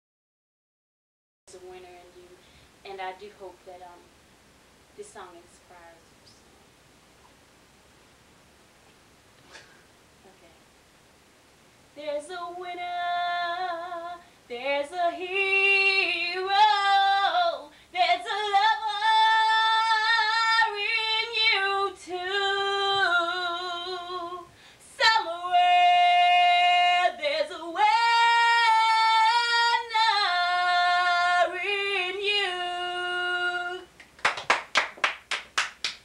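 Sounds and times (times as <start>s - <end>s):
woman singing a cappella: 1.5s - 4.0s, 11.9s - 34.0s
hand claps: 34.0s - 36.0s.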